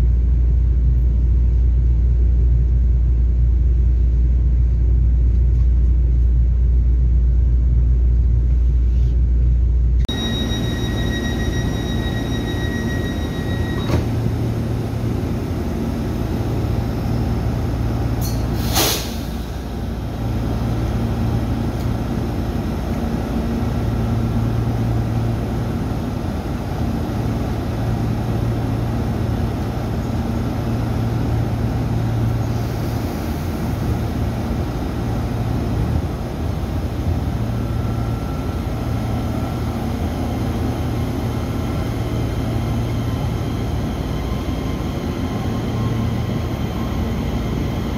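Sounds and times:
air brake hiss: 18.2 - 19.7, 32.5 - 33.8.

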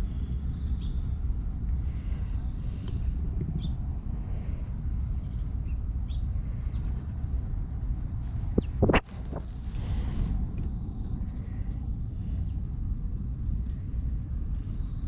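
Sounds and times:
insects droning: 0.0 - 15.0
low rumble on microphone: 0.0 - 15.0.

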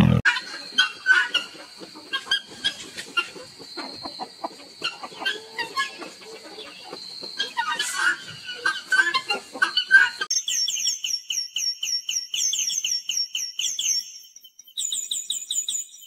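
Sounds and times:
animal clucks and chirps: 0.0 - 10.3.

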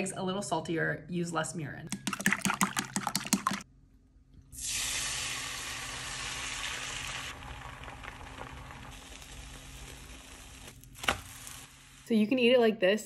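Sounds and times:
eggs sizzling in a frying pan: 4.6 - 12.2.

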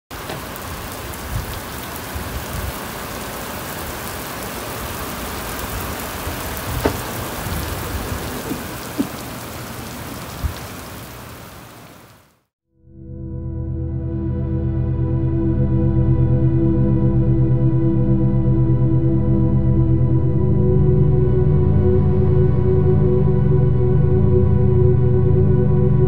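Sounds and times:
rain on wet pavement: 0.1 - 12.5.

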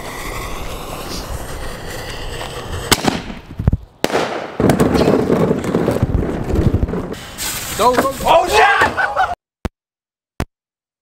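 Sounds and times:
firework cracks: 0.0 - 7.8
ground firework fizzing: 0.0 - 7.9
firework thumps: 0.8 - 7.2
trash can rolling over pavement: 4.6 - 8.4.

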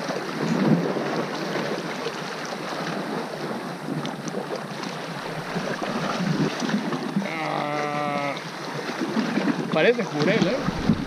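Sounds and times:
waves washing against rocks: 0.0 - 11.0
wind blowing across microphone: 9.1 - 11.0.

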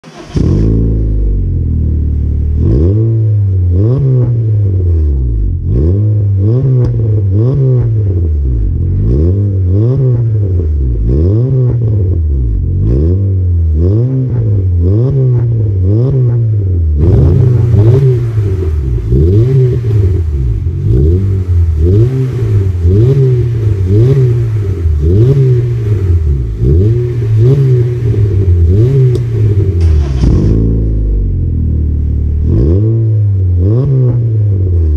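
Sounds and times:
engine revving in throttle blips: 0.0 - 34.9
exhaust hiss: 17.3 - 31.0.

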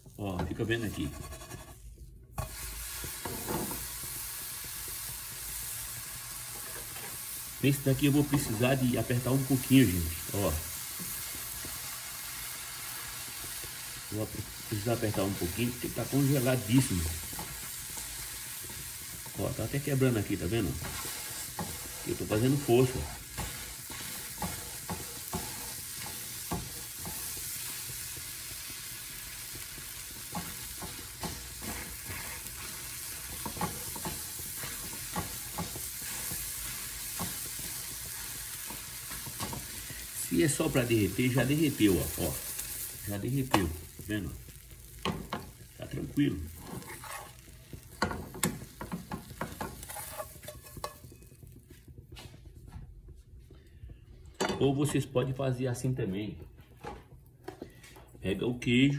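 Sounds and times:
hot pan sizzling: 0.0 - 52.7
metal spoon scraping frying pan: 0.8 - 3.9, 30.3 - 37.8, 46.6 - 51.4
gas burner rush: 2.4 - 51.9.

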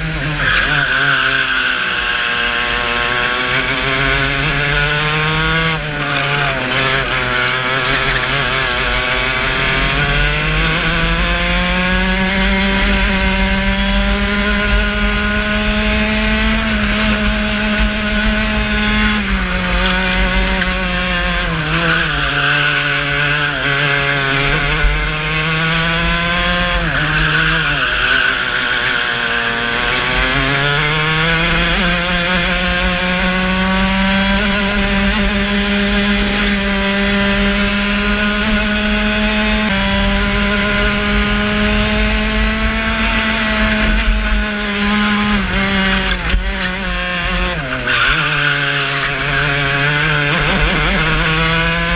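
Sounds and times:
kart engine revving: 0.0 - 51.9.

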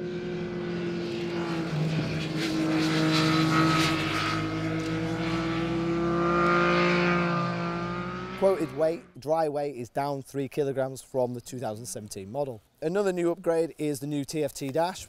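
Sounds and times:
motorcycle engine running: 0.0 - 9.1.

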